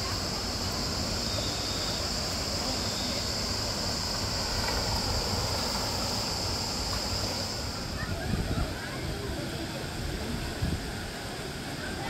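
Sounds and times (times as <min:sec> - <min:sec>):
constant high-pitched hiss: 0:00.0 - 0:12.0
wind rumbling on microphone: 0:03.5 - 0:11.2.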